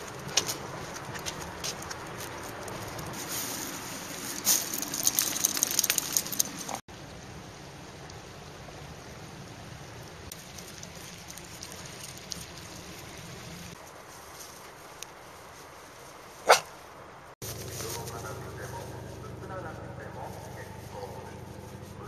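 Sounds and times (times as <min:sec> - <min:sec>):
outdoor background noise: 0:00.0 - 0:22.0
small river flowing: 0:03.1 - 0:15.3.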